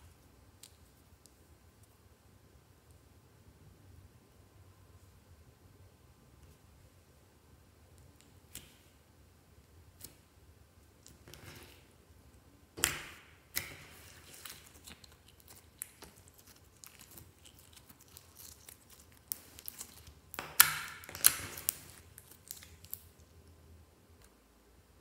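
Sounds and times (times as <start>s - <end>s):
slime sticky clicks and pops: 19.3s - 23.0s.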